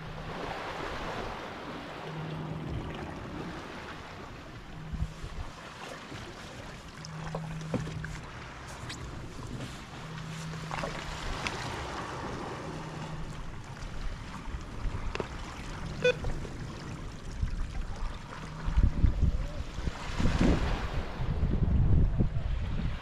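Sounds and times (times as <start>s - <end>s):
water lapping against hull: 0.0s - 23.0s
wind buffeting microphone: 11.0s - 23.0s.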